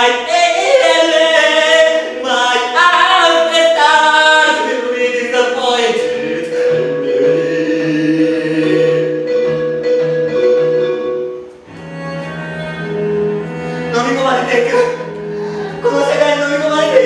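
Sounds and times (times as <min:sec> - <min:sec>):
person singing into a microphone: 0:00.0 - 0:09.4
sustained musical backing: 0:00.0 - 0:17.0.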